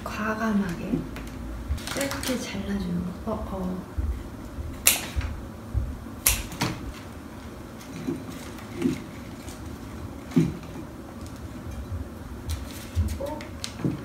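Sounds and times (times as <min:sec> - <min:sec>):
scissors snipping stems: 0:04.8 - 0:05.3, 0:06.2 - 0:06.7.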